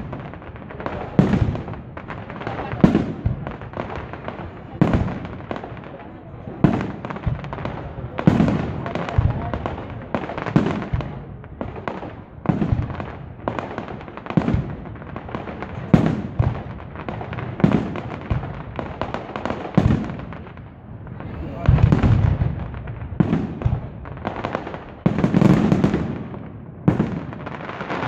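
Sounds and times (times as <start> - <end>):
firework bangs: 0.0 - 28.0
firework crackling and popping: 0.0 - 28.0.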